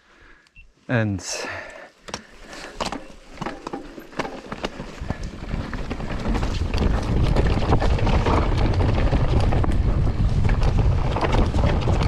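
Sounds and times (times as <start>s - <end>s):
bike rattling over rough ground: 2.0s - 12.0s
wind noise on microphone: 4.8s - 12.0s.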